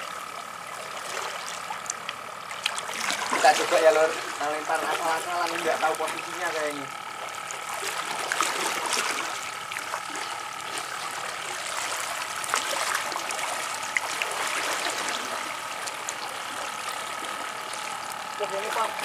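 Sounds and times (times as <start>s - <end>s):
seawater lapping and splashing: 0.0s - 19.0s.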